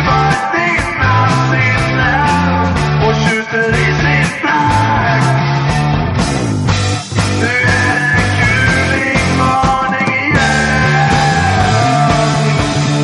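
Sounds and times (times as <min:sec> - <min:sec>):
loud rock music: 0:00.0 - 0:13.0.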